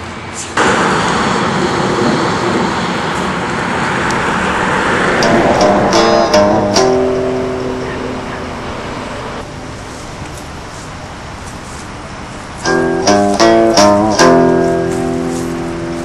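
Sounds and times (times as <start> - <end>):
sharply struck chords: 5.2 - 9.3, 12.6 - 16.0
held chord: 5.2 - 9.4, 12.6 - 16.0.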